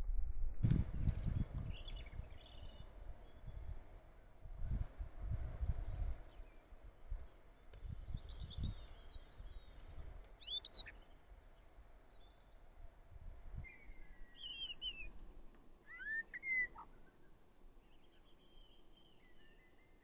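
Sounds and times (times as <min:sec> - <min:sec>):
low rumbles: 0:00.0 - 0:10.4
songbird singing: 0:00.7 - 0:20.0.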